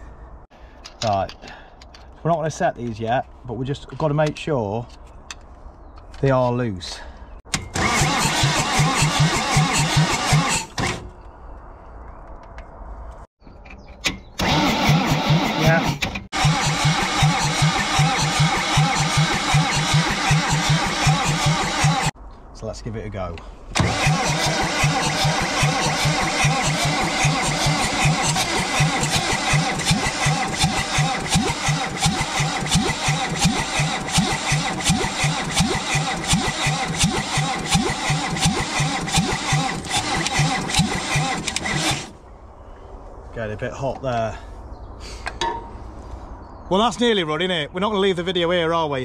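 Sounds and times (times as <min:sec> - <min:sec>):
diesel engine cranking: 0:07.4 - 0:11.2, 0:13.9 - 0:22.2, 0:23.7 - 0:42.3.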